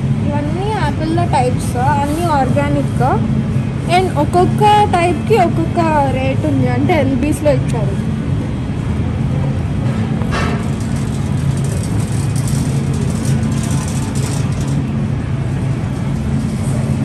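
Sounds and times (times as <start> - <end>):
refrigeration machine hum: 0.0 - 17.0.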